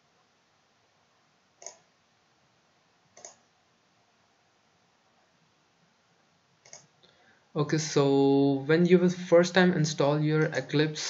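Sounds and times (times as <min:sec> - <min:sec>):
computer mouse click: 0:01.6 - 0:01.9, 0:03.1 - 0:03.5, 0:06.6 - 0:07.1.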